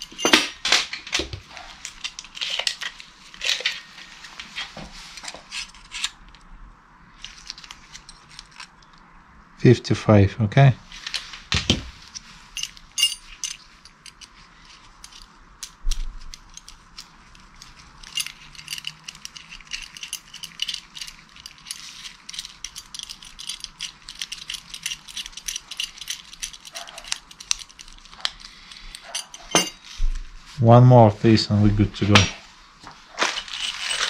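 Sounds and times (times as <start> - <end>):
small steel parts clicking: 0.0 - 3.9, 7.2 - 9.1, 12.1 - 29.9.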